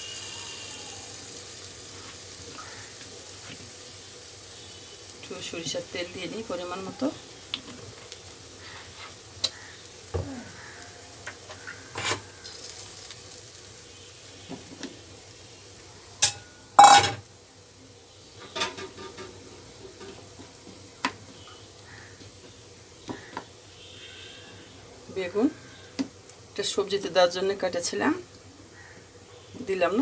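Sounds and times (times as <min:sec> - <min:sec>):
faint sizzle of frying: 0:00.0 - 0:30.0
utensils clattering against pan: 0:16.2 - 0:17.2, 0:18.4 - 0:19.4.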